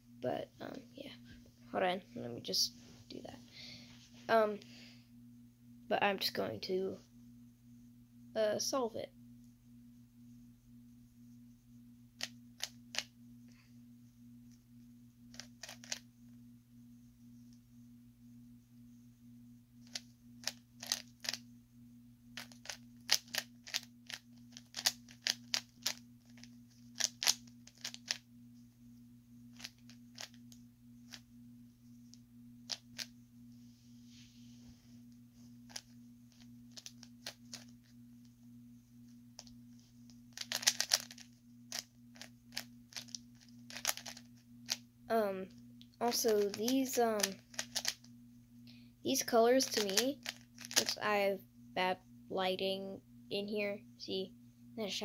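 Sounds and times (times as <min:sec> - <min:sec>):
steady low hum: 0:00.0 - 0:55.0
puzzle cube clicking: 0:15.4 - 0:16.0, 0:19.9 - 0:21.4, 0:22.4 - 0:28.2, 0:36.7 - 0:37.7, 0:40.4 - 0:44.8, 0:46.1 - 0:48.0, 0:49.6 - 0:51.0.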